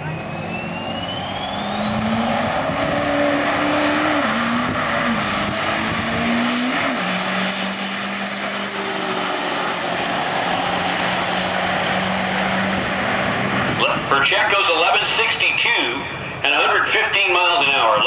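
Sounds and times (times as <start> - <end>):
diesel engine accelerating: 0.0 - 17.2.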